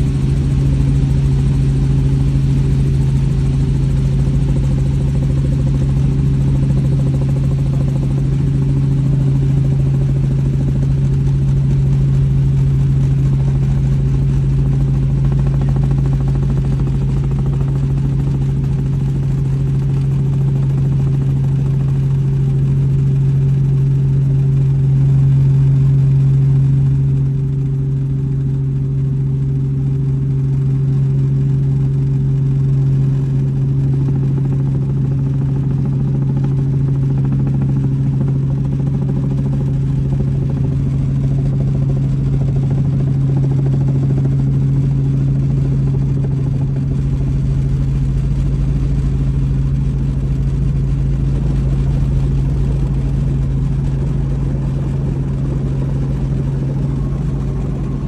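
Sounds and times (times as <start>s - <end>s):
helicopter rotor and turbine drone: 0.0s - 58.0s
deep low rumble: 32.8s - 58.0s.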